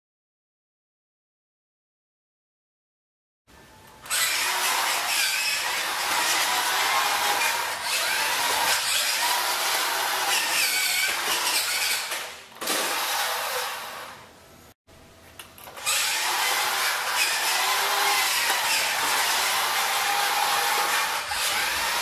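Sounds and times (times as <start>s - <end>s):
toy truck motor whining: 4.0s - 14.2s, 15.7s - 22.0s.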